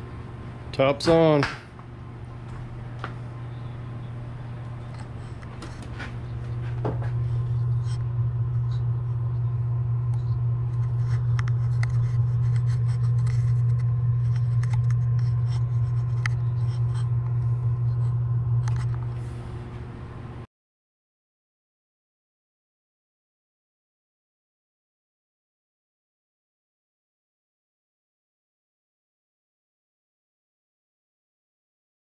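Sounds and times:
steady low hum: 0:00.0 - 0:20.5
scrapes and clicks on wood: 0:10.8 - 0:17.1.

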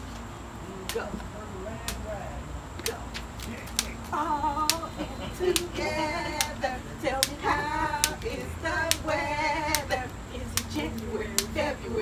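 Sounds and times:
voices chanting and singing: 0:00.0 - 0:12.0
jump rope slapping concrete: 0:02.8 - 0:11.6.

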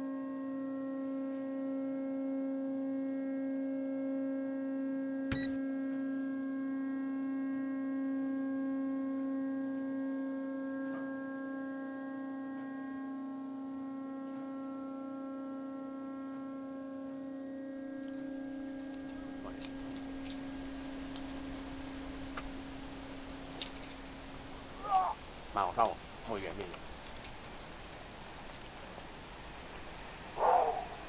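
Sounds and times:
steady hum with overtones: 0:11.8 - 0:31.0.

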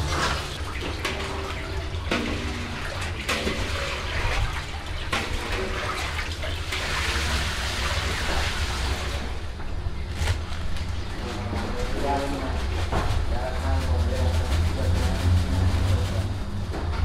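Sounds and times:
water pouring into metal basin: 0:00.0 - 0:09.4
constant low hum: 0:00.0 - 0:17.0.

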